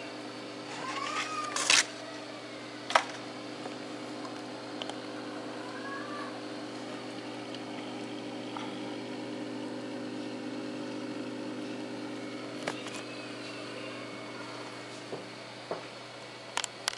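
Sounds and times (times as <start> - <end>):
aquarium filter pump humming: 0.0 - 16.9
water hissing from outlet: 4.7 - 15.2.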